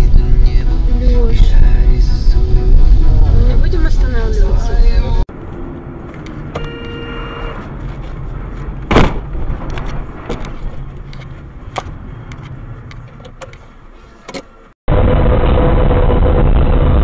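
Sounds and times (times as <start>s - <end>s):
engine and road rumble: 0.0s - 17.0s
sharp thump: 8.9s - 10.5s.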